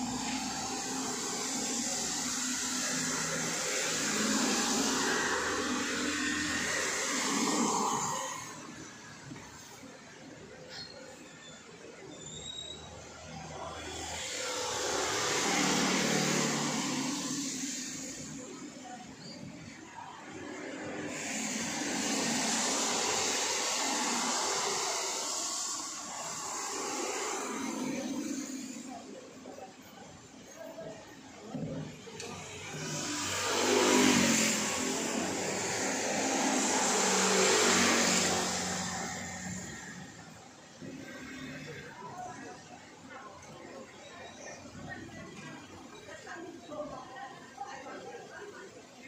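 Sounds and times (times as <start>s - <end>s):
motor scooter passing: 0.0s - 9.0s, 13.4s - 19.1s, 20.2s - 29.4s, 31.9s - 42.0s
cars passing: 0.0s - 10.4s, 13.0s - 42.7s
tyres hissing on damp street: 0.0s - 49.0s.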